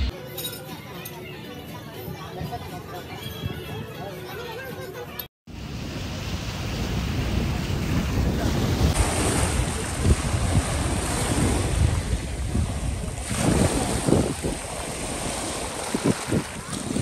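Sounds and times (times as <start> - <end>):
waves washing over pebbles: 5.6 - 17.0
wind buffeting microphone: 5.6 - 17.0.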